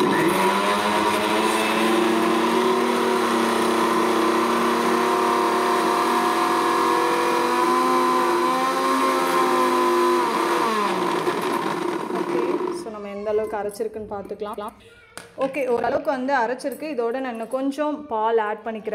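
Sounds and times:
mixer grinder whining: 0:00.0 - 0:13.0.

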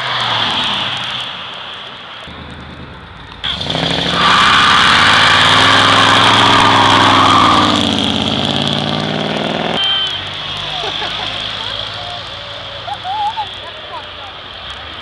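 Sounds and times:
car engine revving: 0:02.2 - 0:09.8
tyres screeching: 0:03.4 - 0:08.8.

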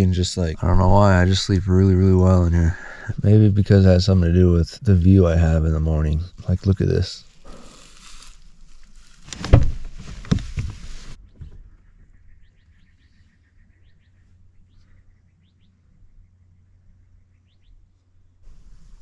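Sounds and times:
low bumps: 0:00.0 - 0:12.1
rustling: 0:06.1 - 0:11.2.

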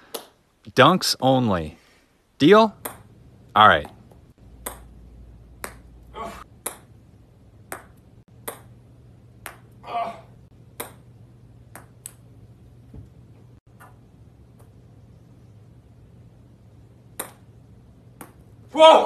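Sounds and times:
balls struck and bouncing: 0:00.0 - 0:00.4, 0:02.7 - 0:07.0, 0:07.6 - 0:09.8, 0:10.6 - 0:12.3, 0:17.1 - 0:17.5, 0:18.1 - 0:18.5.

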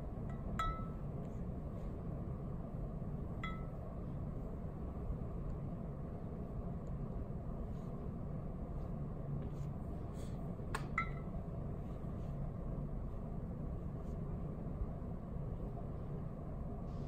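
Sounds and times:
low room hum: 0:00.0 - 0:17.0
short ringing clink: 0:00.3 - 0:01.0.

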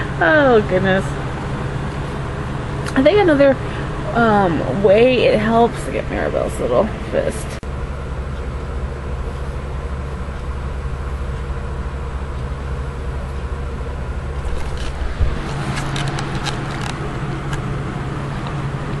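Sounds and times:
steady low hum: 0:00.0 - 0:19.0
camcorder handling clicks and rustling: 0:15.7 - 0:17.6.

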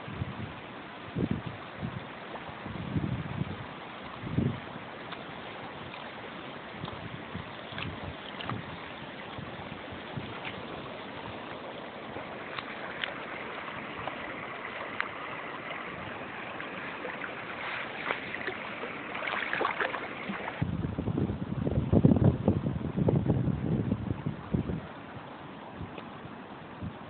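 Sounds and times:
low rumble on microphone: 0:00.0 - 0:27.0
river water lapping: 0:00.5 - 0:20.7
small splashes and clicks: 0:05.0 - 0:06.2, 0:06.8 - 0:09.4, 0:10.2 - 0:20.6.

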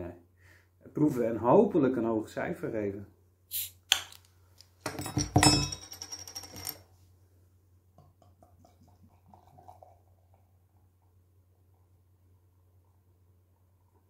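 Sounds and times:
beer glugging into a glass: 0:08.5 - 0:10.4.

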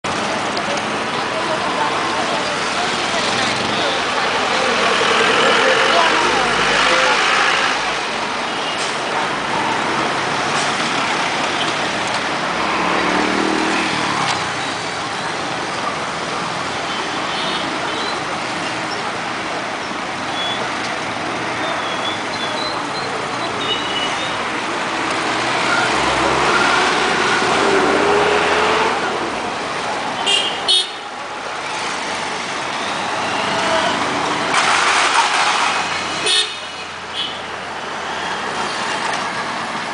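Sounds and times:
motorcycles and cars passing: 0:00.1 - 0:08.3, 0:09.1 - 0:16.8, 0:24.4 - 0:30.6.

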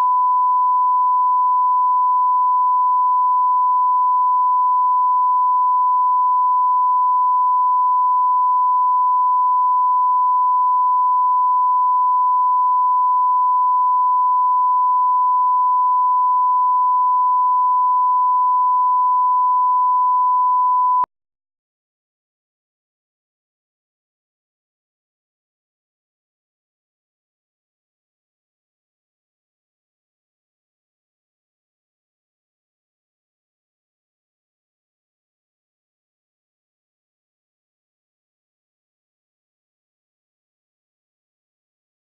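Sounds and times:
steady sine-wave test tone: 0:00.0 - 0:21.1.

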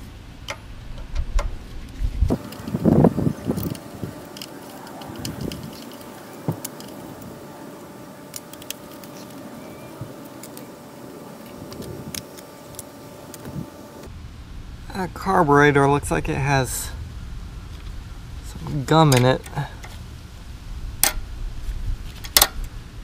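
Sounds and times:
screwdriver turning screws: 0:02.3 - 0:07.4, 0:08.3 - 0:09.6, 0:10.2 - 0:13.7.

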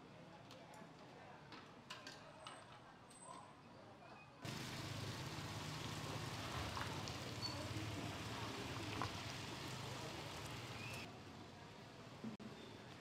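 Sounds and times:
scooter engines running: 0:04.4 - 0:11.1
street noise hiss: 0:04.4 - 0:13.0.

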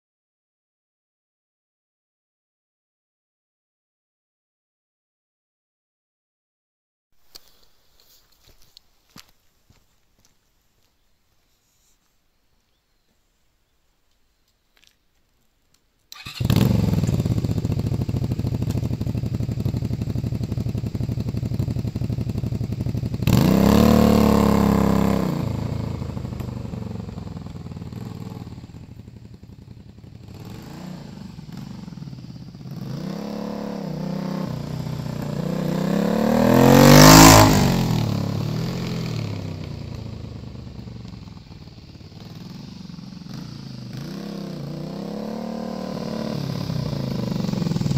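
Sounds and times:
motorcycle engine revving: 0:16.1 - 0:47.9.

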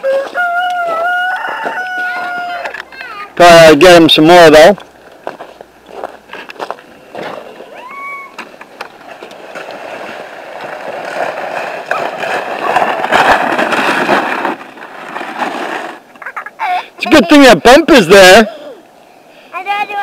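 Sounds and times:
sled scraping over snow: 0:03.4 - 0:18.5.

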